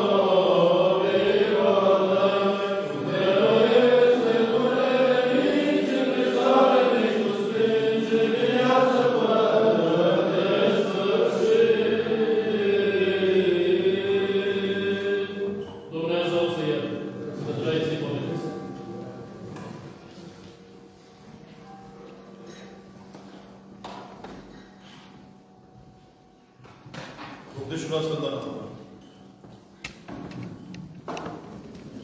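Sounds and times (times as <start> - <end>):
voices chanting: 0.0 - 18.6.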